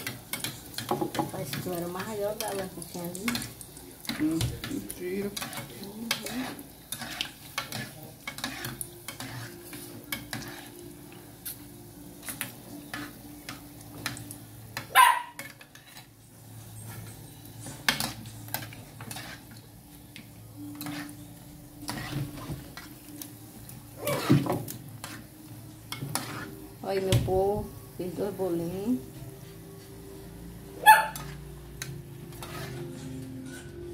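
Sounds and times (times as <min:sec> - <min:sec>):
oil sizzling: 0:00.0 - 0:33.3
metal spoon scraping pot: 0:05.2 - 0:10.7, 0:17.9 - 0:19.4, 0:20.6 - 0:21.2, 0:21.8 - 0:22.4, 0:25.9 - 0:26.6, 0:32.3 - 0:33.7.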